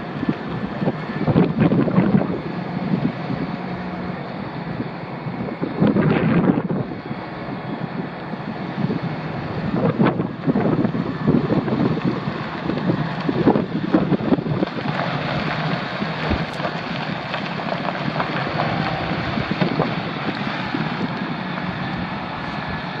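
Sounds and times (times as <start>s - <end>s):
truck engine idling: 0.0s - 23.0s
wind buffeting microphone: 0.0s - 23.0s.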